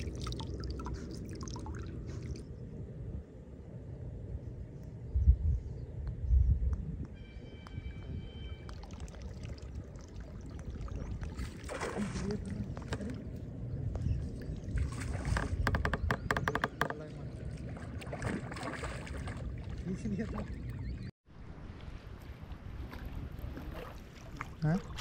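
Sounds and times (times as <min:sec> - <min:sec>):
water splashing: 0:00.0 - 0:02.4, 0:08.6 - 0:13.5, 0:16.6 - 0:21.1, 0:21.9 - 0:25.0.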